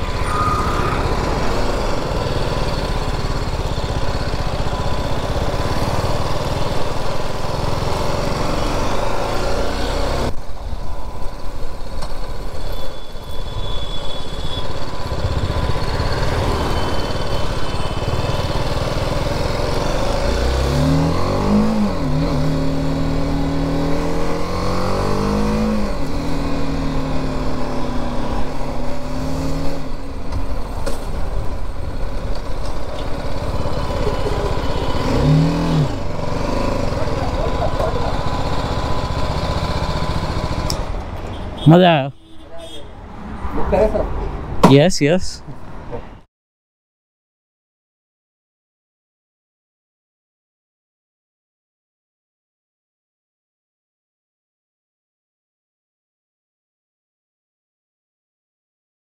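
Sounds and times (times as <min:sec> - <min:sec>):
motorcycle engine running: 0:00.0 - 0:10.2, 0:14.7 - 0:20.6, 0:28.9 - 0:40.9.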